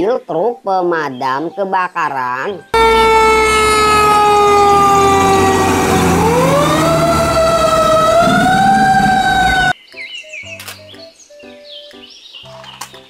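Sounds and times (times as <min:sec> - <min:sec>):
low engine rumble: 0:02.8 - 0:09.7
fire truck siren wailing: 0:02.8 - 0:09.8.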